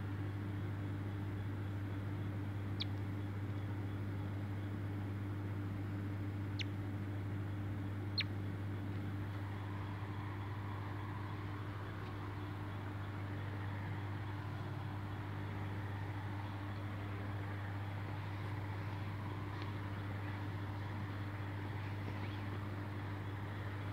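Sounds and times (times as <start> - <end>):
low hum and hiss: 0.0 - 23.9
squirrel squeaks: 6.5 - 6.8, 8.1 - 8.4.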